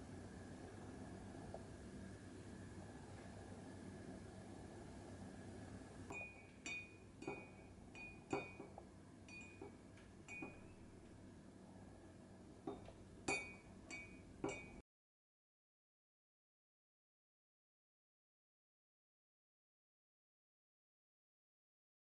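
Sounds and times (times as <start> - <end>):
spoon clinking in ceramic mug: 6.1 - 10.8, 12.7 - 14.8.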